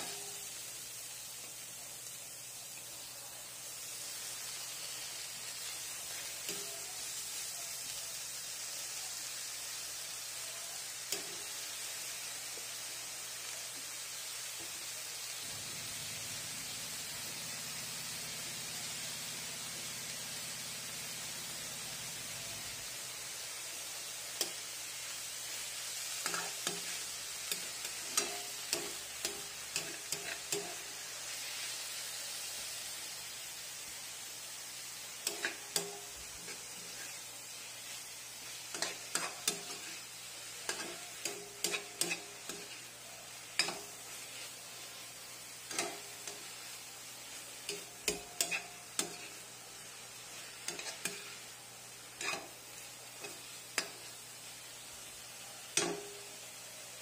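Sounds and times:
greens sizzling: 0.0 - 57.0
metal spatula scraping a wok: 26.0 - 31.8, 35.2 - 45.0, 45.7 - 49.5, 50.1 - 54.2.

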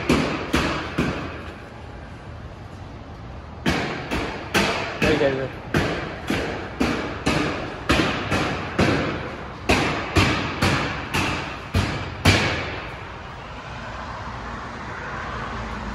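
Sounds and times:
heavy hammer blows echoing: 0.0 - 2.1, 3.6 - 13.4.

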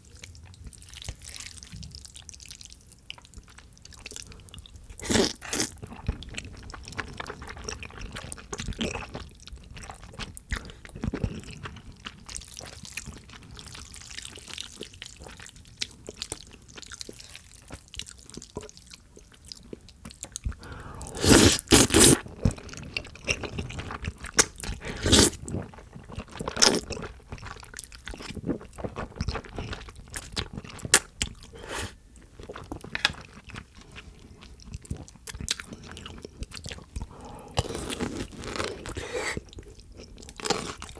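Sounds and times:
slurping noodles: 20.9 - 22.2, 24.7 - 25.4, 31.5 - 32.0, 37.2 - 39.5.

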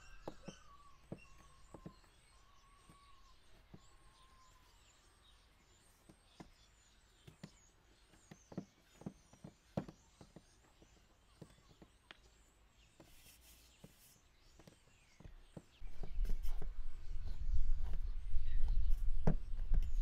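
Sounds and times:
faint bird chirps: 0.0 - 20.0.

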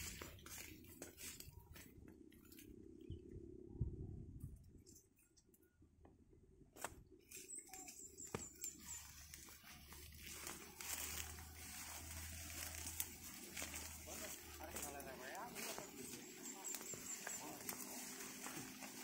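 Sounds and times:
leaves rustling: 0.0 - 2.7, 7.3 - 19.0
footsteps through undergrowth: 0.0 - 3.0, 6.8 - 19.0.

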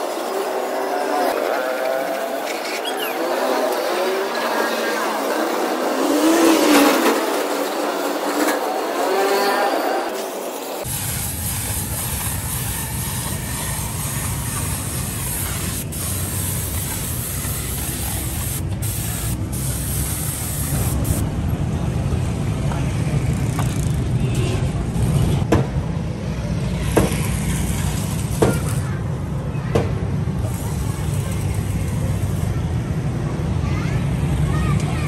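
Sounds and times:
paint spray gun hissing: 10.8 - 21.2.

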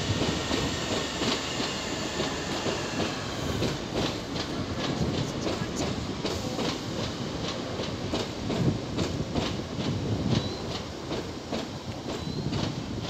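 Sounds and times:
train rumble: 0.0 - 13.0.

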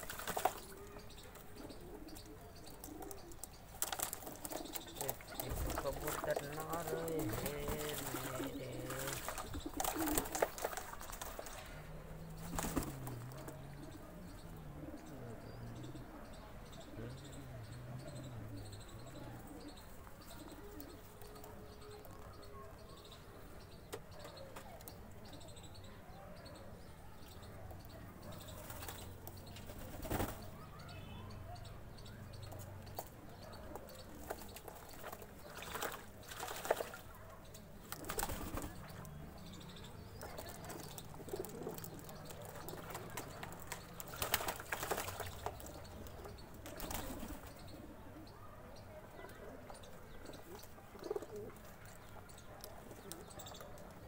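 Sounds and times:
pigeon wings flapping: 0.0 - 0.9, 2.8 - 13.6, 28.5 - 30.5, 34.2 - 37.2, 37.9 - 38.9, 40.2 - 45.8, 46.6 - 47.5
pigeons cooing: 0.0 - 30.8, 31.4 - 54.0
water splashing: 3.8 - 13.6, 34.6 - 37.1, 40.3 - 47.2.

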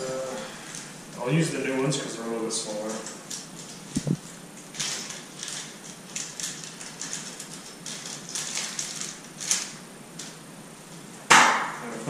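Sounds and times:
plastic crinkling: 2.7 - 10.4.

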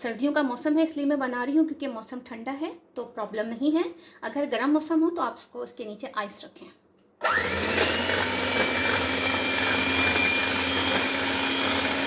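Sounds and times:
electric hand mixer whipping cream: 7.2 - 12.0.

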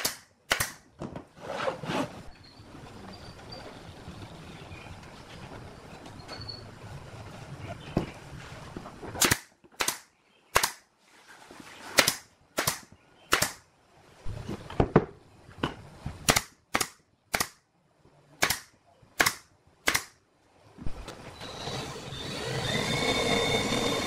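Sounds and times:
pneumatic nailer firing into wood: 0.0 - 0.8, 18.4 - 20.1.

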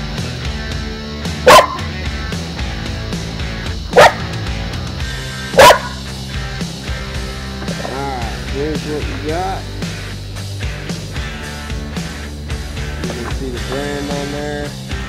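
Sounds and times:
background music: 0.0 - 15.0
dog barking: 1.4 - 2.0, 3.9 - 4.4, 5.5 - 6.1.

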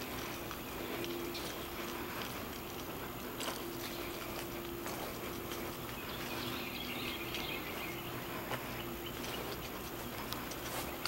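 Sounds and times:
footsteps on pavement: 0.0 - 11.0
low steady hum: 0.0 - 11.0.

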